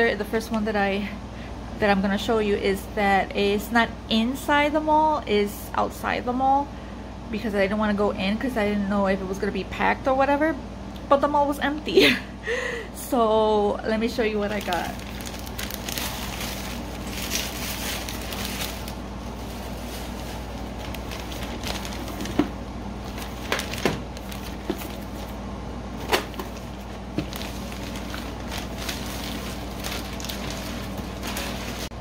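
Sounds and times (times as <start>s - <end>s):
plastic bag rustling and crinkling: 14.3s - 25.4s, 26.0s - 32.0s.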